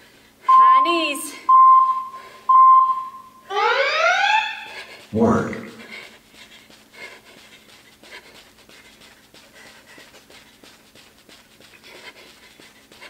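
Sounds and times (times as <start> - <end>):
woman panting hard: 0.0 - 0.5, 2.2 - 2.5, 4.7 - 13.0
feet striking artificial turf: 5.8 - 13.0.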